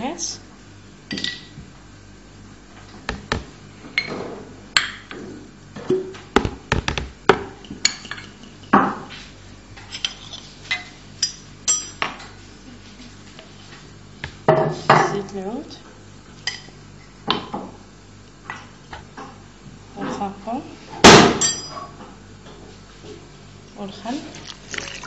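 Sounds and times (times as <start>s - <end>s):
utensils clinking against bowl: 9.9s - 12.1s, 21.4s - 22.0s.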